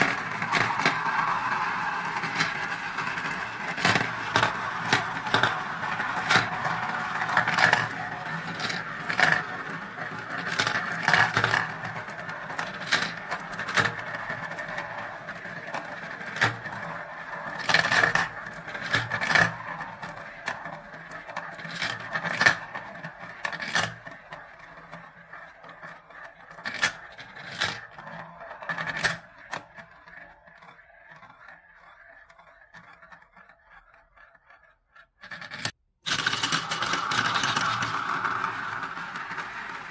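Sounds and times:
marbles clicking together: 0.0 - 16.6, 36.1 - 39.9
marbles rolling in plastic bowls: 0.0 - 39.9.

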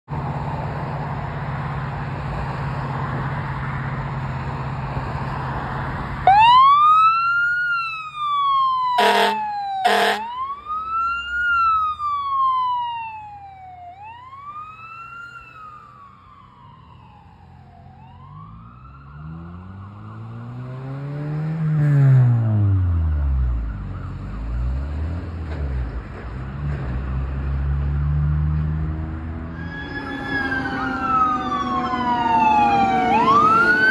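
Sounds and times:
traffic noise: 0.1 - 33.9
ambulance siren wailing: 6.2 - 21.0, 22.6 - 24.9, 29.5 - 33.9
deep low siren tone: 6.2 - 25.1, 29.3 - 33.9
air horn blasts: 9.0 - 10.4.

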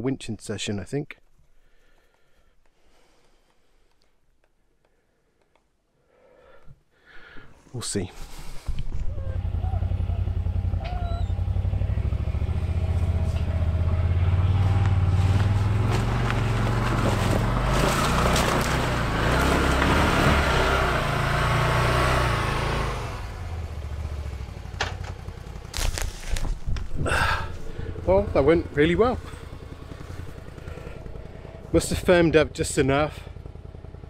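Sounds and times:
vehicle engine running: 8.6 - 34.0
tyres rushing through snow: 11.4 - 24.0, 25.2 - 32.2.

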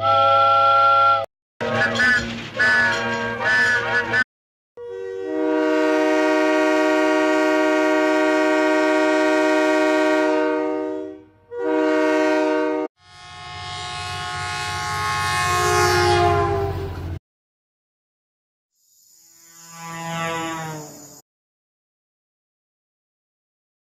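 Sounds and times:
locomotive air horns: 0.0 - 4.2, 4.8 - 17.2, 19.6 - 21.0.

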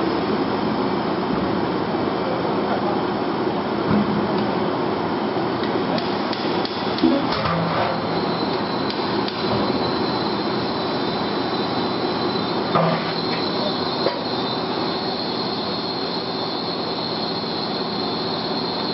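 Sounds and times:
metal spinning machine whining: 6.0 - 18.9.

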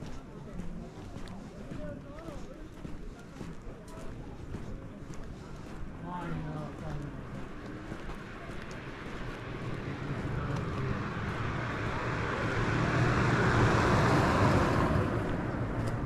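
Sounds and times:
car passing by: 6.5 - 16.0.

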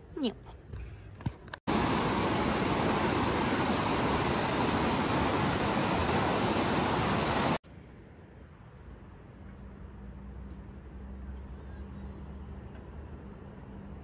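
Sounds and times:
loud steady rushing noise: 1.7 - 7.6.

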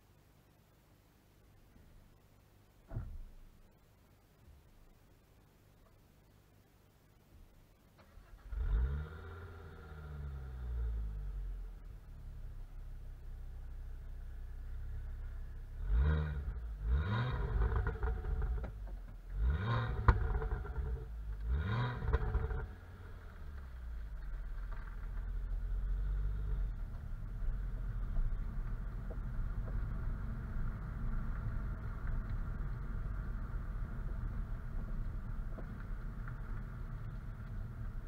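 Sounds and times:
road noise: 7.8 - 38.0
car engine revving: 8.1 - 12.6, 14.6 - 38.0
exhaust crack: 13.6 - 38.0.

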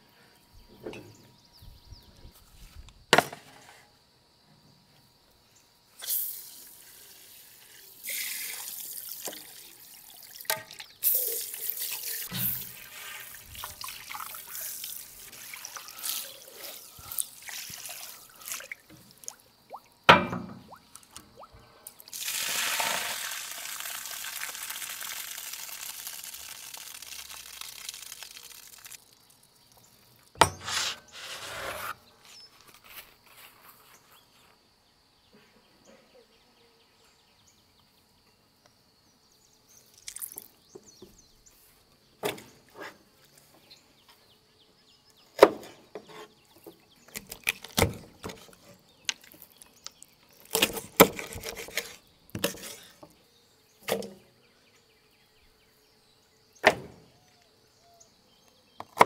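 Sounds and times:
water pouring and splashing: 7.8 - 19.8, 20.7 - 30.4, 39.9 - 40.6.

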